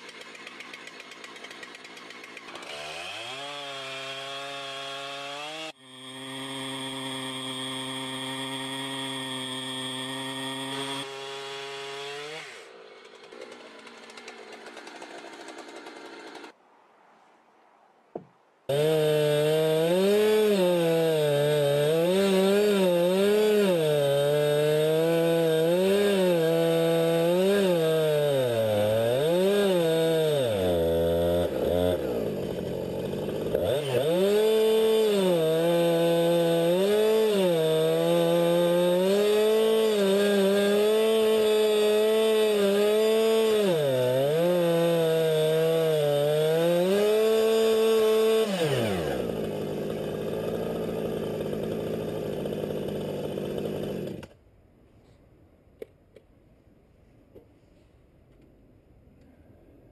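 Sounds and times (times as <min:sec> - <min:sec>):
chainsaw engine revving: 0:00.0 - 0:16.6, 0:18.7 - 0:54.4.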